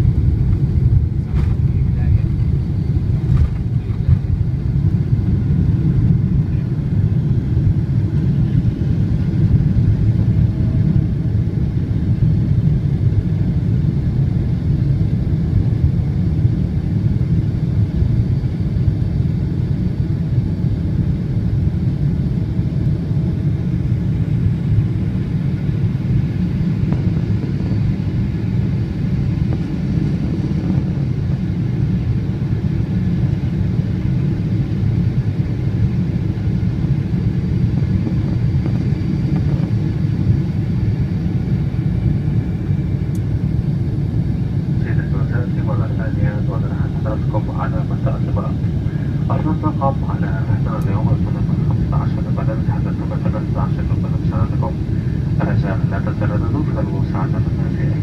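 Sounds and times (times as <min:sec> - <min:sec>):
jet engines at takeoff thrust: 0:00.0 - 0:58.0
rushing air: 0:48.6 - 0:49.3, 0:54.8 - 0:55.4.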